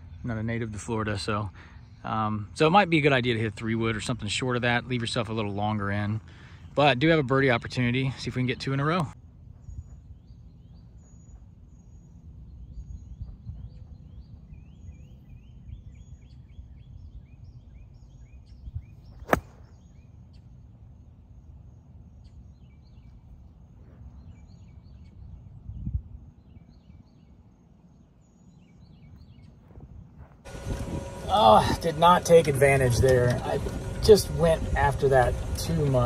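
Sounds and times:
birds chirping: 0.0s - 36.0s
wind rumbling on microphone: 9.4s - 19.2s, 22.6s - 27.3s, 28.6s - 31.9s
golf club striking ball: 19.1s - 19.8s.

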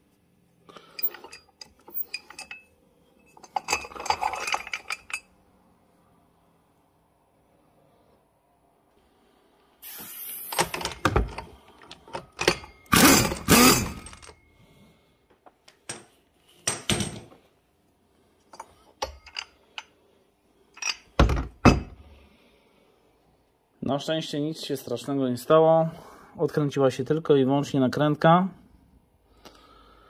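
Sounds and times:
metal tools clinking: 0.8s - 5.4s, 10.6s - 14.5s, 18.5s - 19.9s, 20.7s - 21.2s.

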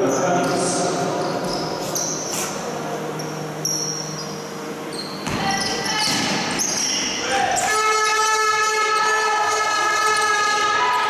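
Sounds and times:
echoing murmur of voices: 0.0s - 11.0s
sneakers squeaking: 0.2s - 8.4s
basketball bouncing: 5.2s - 6.8s.

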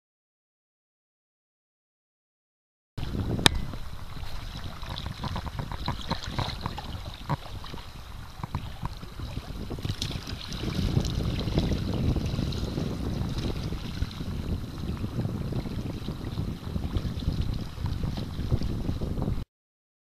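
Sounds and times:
water lapping against hull: 3.0s - 19.4s
wind buffeting microphone: 3.0s - 19.4s
small splashes: 3.8s - 12.4s.

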